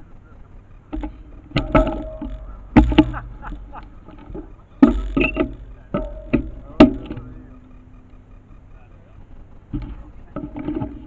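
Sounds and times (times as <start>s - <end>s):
sharp knocks and clunks: 0.9s - 8.2s, 9.7s - 11.0s.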